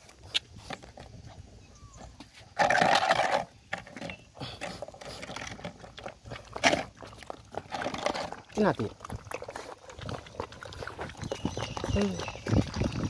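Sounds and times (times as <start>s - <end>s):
milk pouring into plastic bowl: 7.1s - 13.0s.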